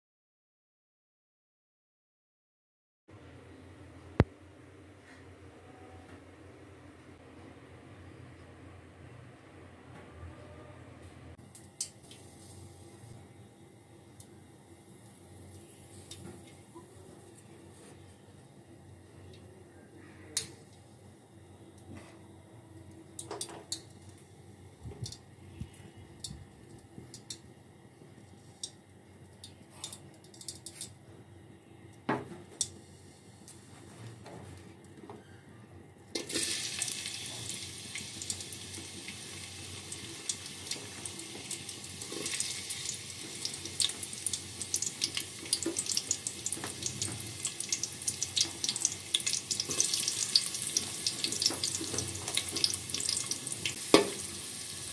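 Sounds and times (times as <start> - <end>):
oil ticking in pot: 25.0 - 25.2, 26.2 - 27.4, 36.2 - 54.9
onions sizzling in hot oil: 36.2 - 54.9.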